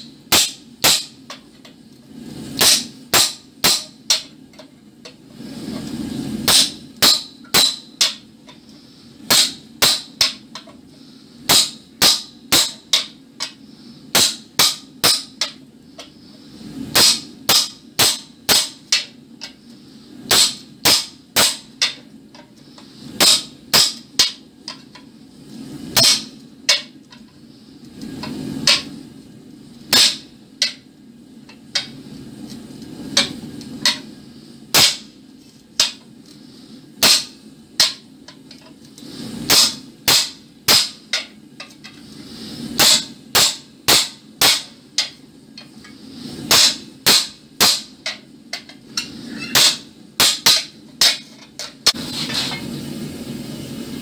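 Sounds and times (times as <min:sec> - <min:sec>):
hammer striking iron on anvil: 0:00.3 - 0:01.5, 0:02.6 - 0:04.7, 0:06.4 - 0:08.6, 0:09.3 - 0:10.7, 0:11.5 - 0:16.1, 0:16.9 - 0:19.6, 0:20.3 - 0:22.1, 0:23.2 - 0:25.0, 0:26.0 - 0:27.0, 0:28.6 - 0:28.9, 0:29.9 - 0:30.9, 0:31.7 - 0:32.0, 0:33.1 - 0:34.1, 0:34.7 - 0:35.1, 0:35.8 - 0:36.0, 0:37.0 - 0:38.1, 0:39.5 - 0:41.8, 0:42.8 - 0:45.2, 0:46.5 - 0:52.0.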